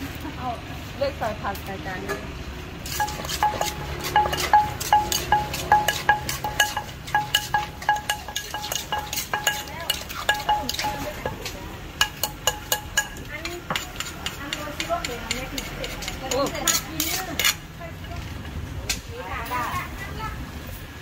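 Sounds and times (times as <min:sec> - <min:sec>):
pestle pounding in mortar: 0:02.9 - 0:17.6.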